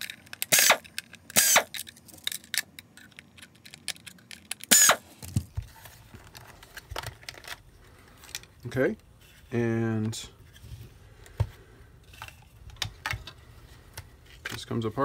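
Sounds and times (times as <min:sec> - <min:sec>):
power screwdriver whirring: 0:00.5 - 0:00.8, 0:01.4 - 0:01.7, 0:04.7 - 0:05.0.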